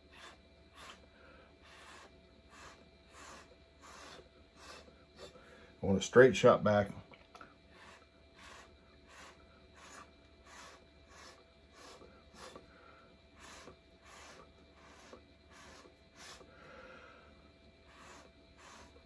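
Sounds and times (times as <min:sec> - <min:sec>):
breath puffs through a straw: 0:00.0 - 0:05.7, 0:07.7 - 0:19.0.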